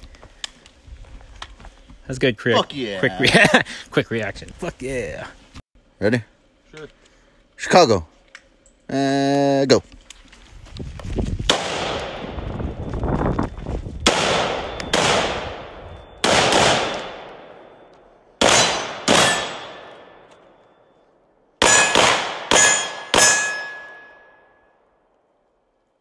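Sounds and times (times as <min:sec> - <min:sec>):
gunshots echoing: 0:11.5 - 0:12.4, 0:14.1 - 0:17.8, 0:18.4 - 0:20.3, 0:21.6 - 0:24.3.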